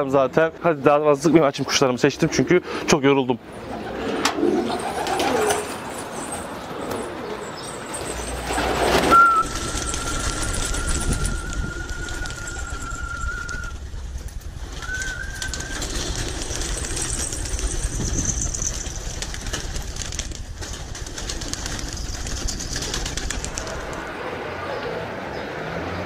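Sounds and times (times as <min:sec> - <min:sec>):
short rising whistle: 0:09.0 - 0:13.8
long steady whistle: 0:09.1 - 0:13.8.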